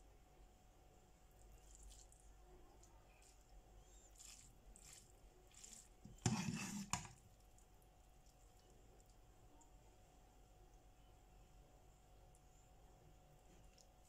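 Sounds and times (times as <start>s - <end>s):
metal server scraping a frying pan: 6.1s - 7.1s.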